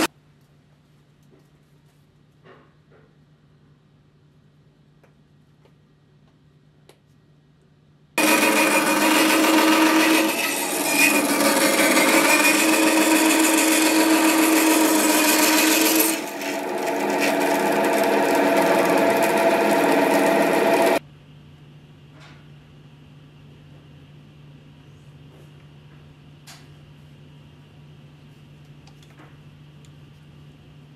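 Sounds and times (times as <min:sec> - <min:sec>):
band saw cutting wood: 0:08.2 - 0:21.0.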